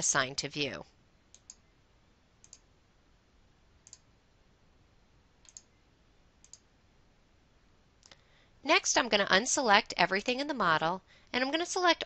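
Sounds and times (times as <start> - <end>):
computer mouse clicks: 1.3 - 1.6, 2.4 - 2.7, 3.8 - 4.1, 5.4 - 5.7, 6.4 - 6.7.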